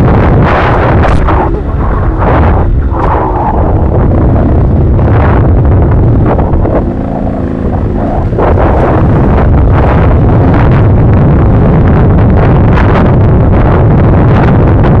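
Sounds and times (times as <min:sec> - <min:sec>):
bike rumbling and rattling on trail: 0:00.0 - 0:15.0
wind buffeting microphone: 0:00.0 - 0:15.0.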